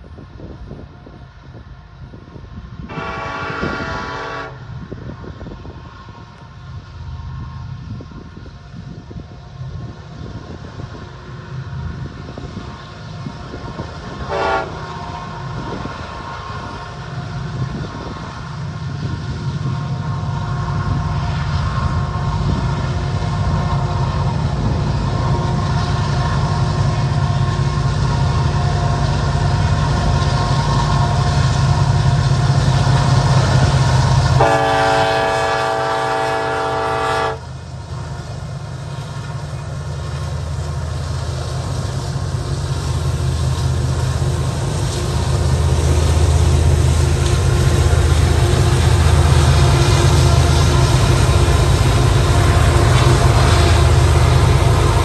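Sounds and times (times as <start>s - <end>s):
diesel locomotive engine rumble: 0.0s - 55.0s
train horn blast: 2.9s - 4.7s, 14.3s - 14.9s, 34.3s - 37.5s.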